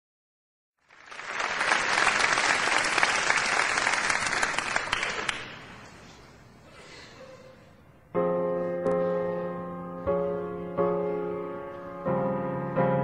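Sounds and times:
audience applauding: 0:00.8 - 0:05.8.

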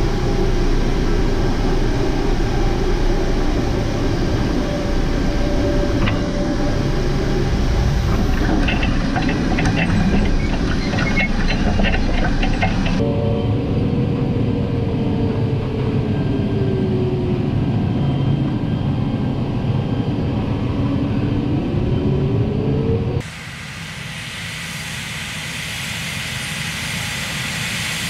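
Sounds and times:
tractor and planter rushing hiss: 0:00.0 - 0:13.0, 0:23.2 - 0:28.0
tractor engine drone with whine: 0:00.0 - 0:28.0.

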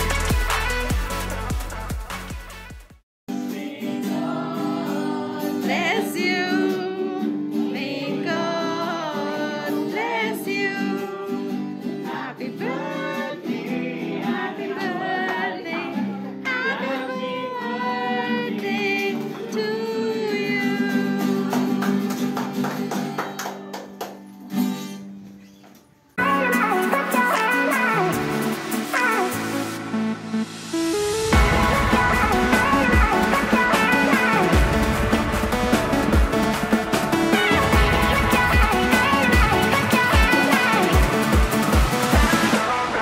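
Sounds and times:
music track: 0:00.0 - 0:02.8, 0:26.2 - 0:43.0
person singing with plucked guitar: 0:03.3 - 0:22.6, 0:26.2 - 0:29.7, 0:31.4 - 0:43.0.

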